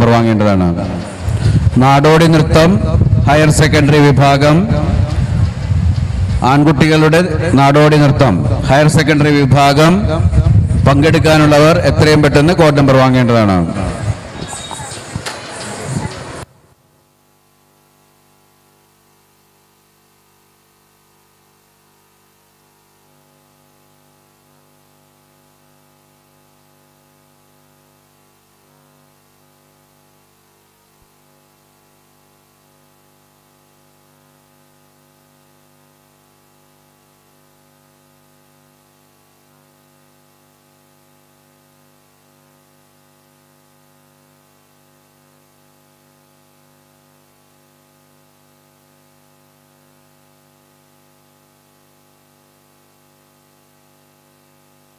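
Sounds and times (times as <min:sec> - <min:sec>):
electrical hum and hiss: 0:00.0 - 0:54.9.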